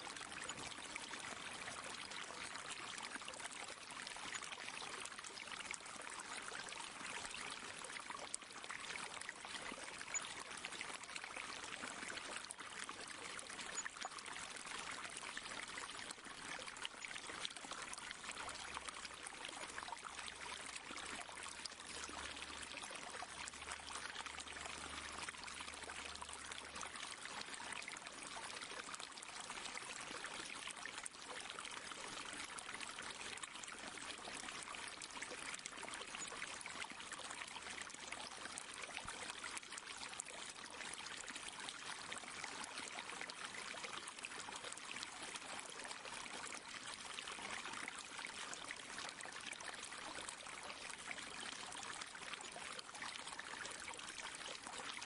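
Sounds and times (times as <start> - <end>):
pond water trickling and pouring: 0.0 - 55.0.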